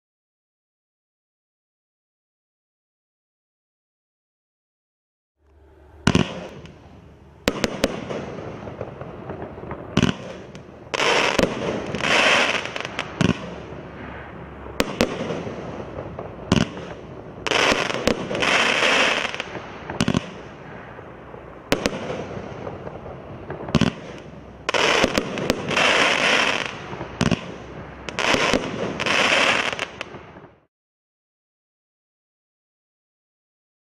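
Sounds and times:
fireworks crackling: 5.5s - 30.7s
fireworks reports and bursts: 5.6s - 30.7s.

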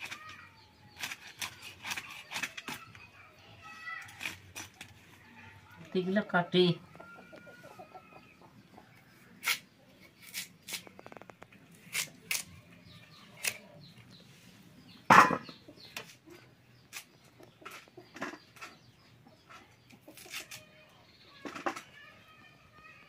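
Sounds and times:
blade clicking through garlic: 11.9s - 12.5s, 13.4s - 13.6s.

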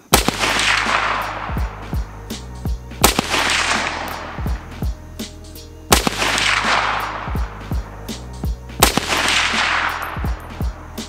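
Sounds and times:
rifle shot with echo: 0.0s - 1.8s, 3.0s - 4.6s, 5.9s - 7.5s, 8.8s - 10.8s
background music with steady beat: 0.0s - 11.0s.

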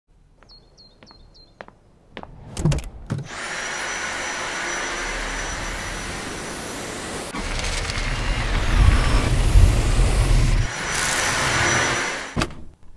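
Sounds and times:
vacuum cleaner running: 3.2s - 12.5s.

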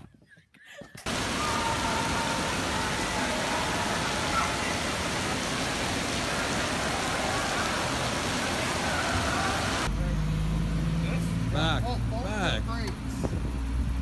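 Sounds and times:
water rushing from fountains: 1.1s - 9.9s.

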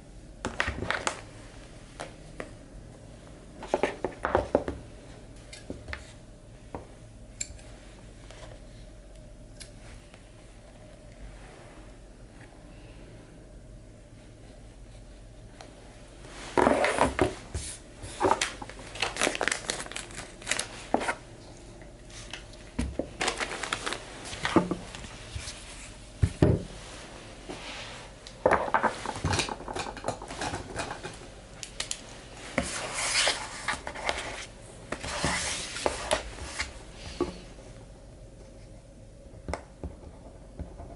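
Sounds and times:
paper and cloth rustling: 23.1s - 26.0s.

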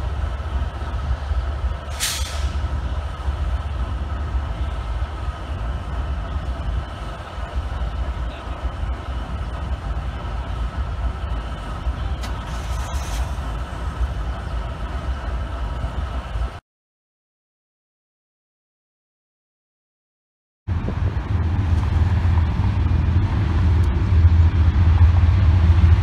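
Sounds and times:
distant diesel locomotive rumble: 0.0s - 16.6s, 20.7s - 26.0s
brief hiss: 1.9s - 2.6s, 12.2s - 13.4s.

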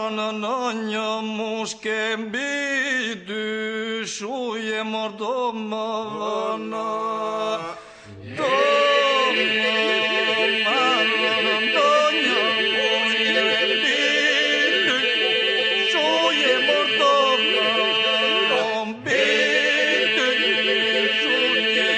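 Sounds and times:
unaccompanied voices singing: 8.1s - 21.9s.

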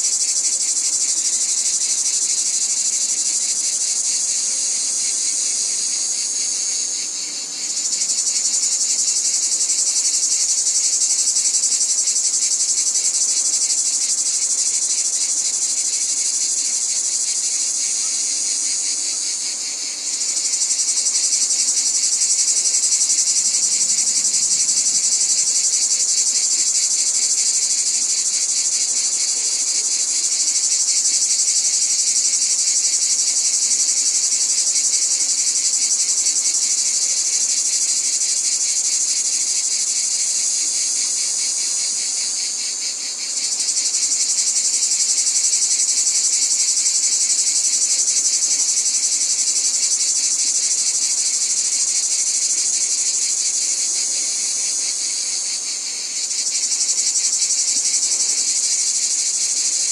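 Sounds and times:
high-pitched insect chorus: 0.0s - 59.9s.

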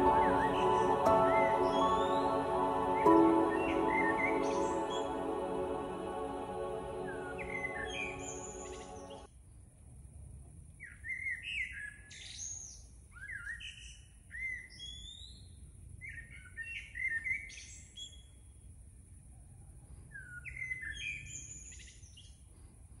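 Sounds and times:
songbird singing: 0.0s - 9.3s.

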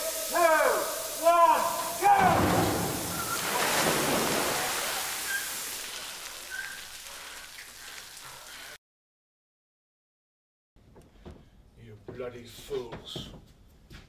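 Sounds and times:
water burst splashing onto floor: 0.0s - 8.8s.

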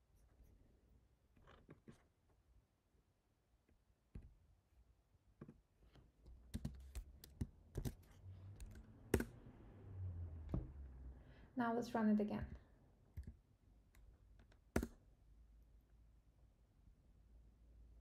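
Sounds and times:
keyboard and mouse clicks: 6.3s - 9.4s, 13.1s - 15.0s.

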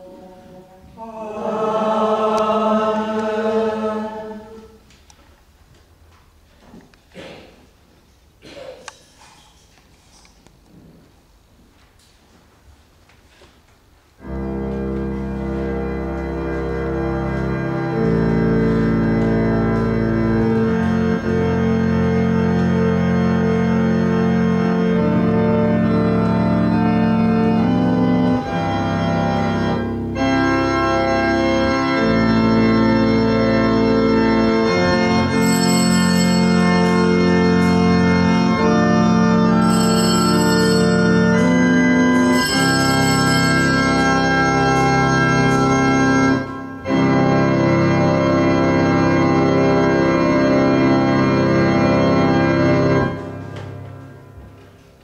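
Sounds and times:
church organ chords: 14.2s - 54.6s
bright high ringing: 39.6s - 41.6s.

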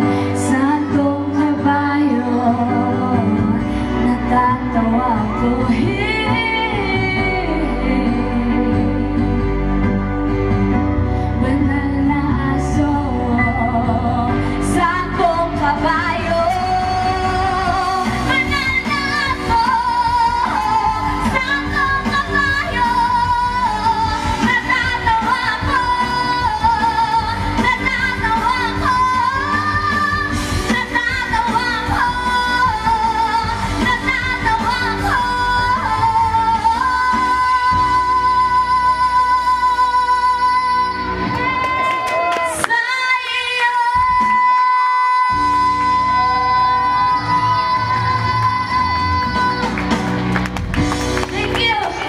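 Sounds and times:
woman singing into microphone: 0.0s - 50.4s, 51.2s - 52.0s
instrumental backing music: 0.0s - 52.0s.

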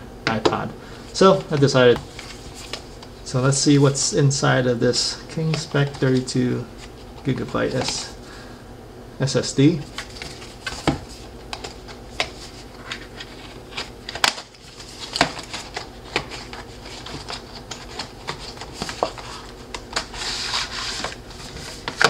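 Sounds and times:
cardboard rustling: 1.1s - 4.0s, 5.3s - 8.2s, 9.8s - 22.0s
card tapping and rubbing: 9.8s - 22.0s
cardboard sleeve sliding: 18.0s - 22.0s.

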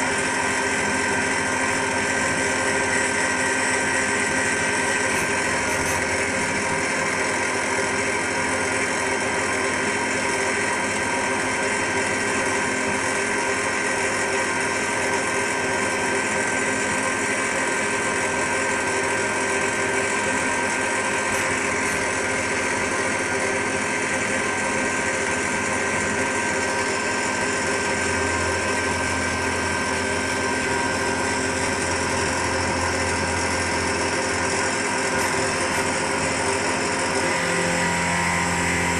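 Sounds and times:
machine drone with held tones: 26.7s - 38.9s.

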